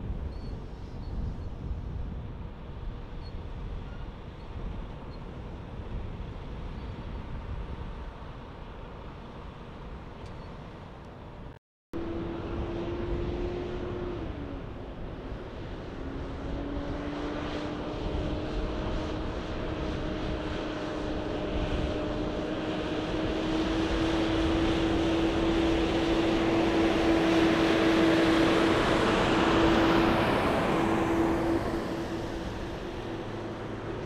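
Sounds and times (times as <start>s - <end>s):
tyre and road noise: 8.0s - 34.0s
diesel truck engines accelerating: 12.0s - 34.0s.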